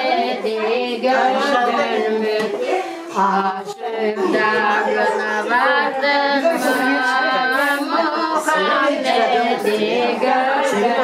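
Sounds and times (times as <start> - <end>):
person singing a hymn: 0.0 - 11.0.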